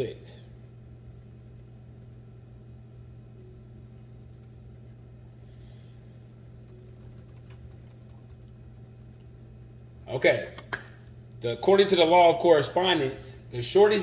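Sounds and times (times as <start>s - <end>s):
steady low hum: 0.0s - 14.0s
keyboard typing clicks: 6.6s - 9.4s.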